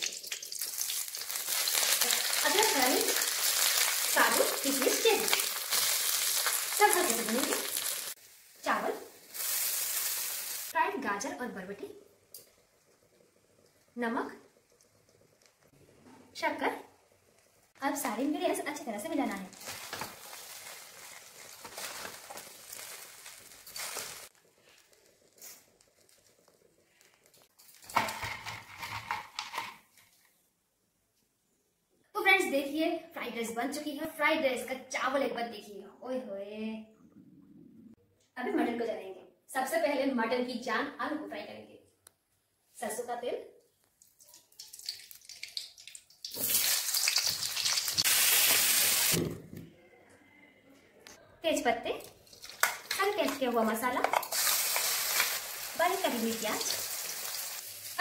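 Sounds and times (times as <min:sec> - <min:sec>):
potatoes sizzling in hot oil: 0:00.0 - 0:13.2, 0:17.7 - 0:29.7, 0:44.5 - 0:49.3, 0:52.1 - 0:58.0
oil crackling faintly: 0:00.0 - 0:30.3, 0:43.6 - 0:49.2, 0:51.9 - 0:58.0.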